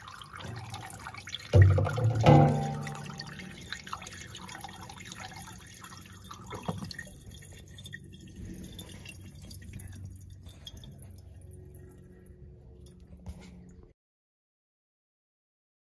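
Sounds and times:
toilet flush water swirling: 0.0s - 9.8s
water trickle and drips: 0.0s - 13.1s.

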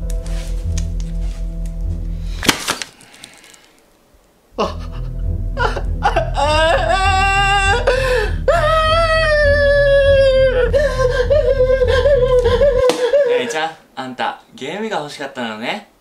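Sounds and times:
music with deep bass: 0.0s - 2.4s, 4.6s - 12.8s
man wailing: 4.6s - 13.8s.

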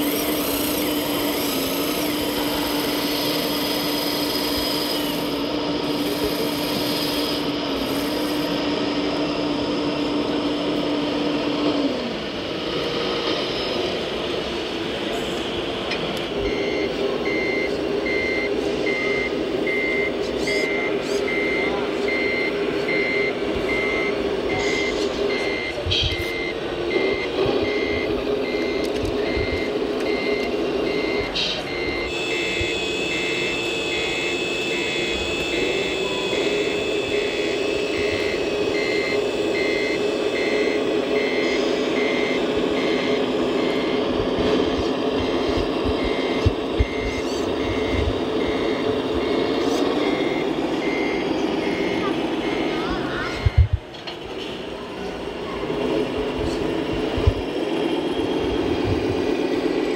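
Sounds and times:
reversing beeps: 0.0s - 8.7s, 16.4s - 53.8s
simulated diesel engine hum: 0.0s - 59.9s.

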